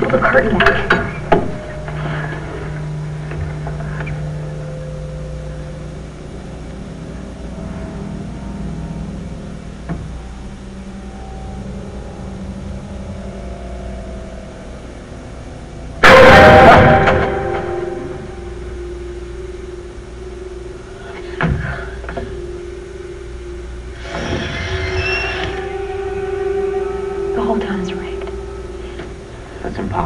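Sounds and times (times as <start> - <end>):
low suspense drone: 0.0 - 30.0
faint held tones: 0.6 - 29.9
loud stinger hit: 16.0 - 18.7.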